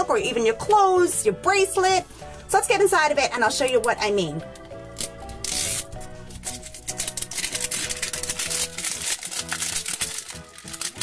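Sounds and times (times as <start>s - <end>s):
background music: 0.0s - 11.0s
plastic wrapper crinkling and tearing: 4.9s - 11.0s.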